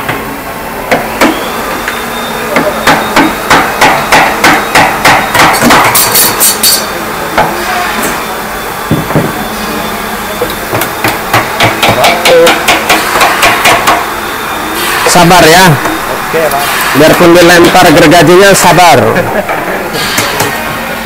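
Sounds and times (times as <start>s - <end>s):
mallet striking chisel into wood: 2.6s - 6.3s, 10.7s - 14.0s.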